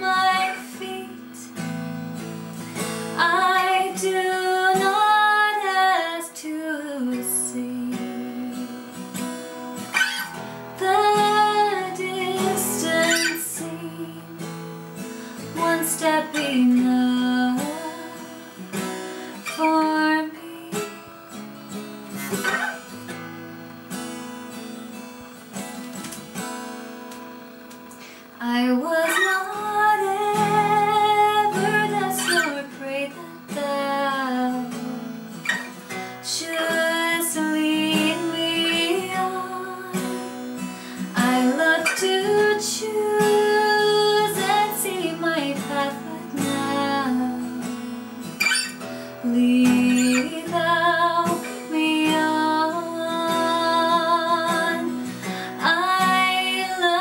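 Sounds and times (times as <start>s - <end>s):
woman singing a hymn: 0.0s - 1.6s, 3.2s - 9.0s, 10.8s - 14.4s, 15.5s - 18.6s, 19.4s - 21.0s, 28.4s - 35.2s, 36.2s - 48.2s, 49.2s - 57.0s
acoustic guitar: 0.0s - 57.0s.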